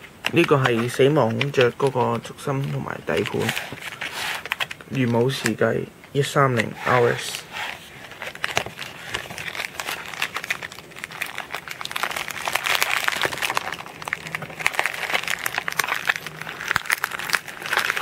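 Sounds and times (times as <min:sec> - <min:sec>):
plastic packaging crinkling: 0:00.0 - 0:05.7, 0:06.5 - 0:18.0.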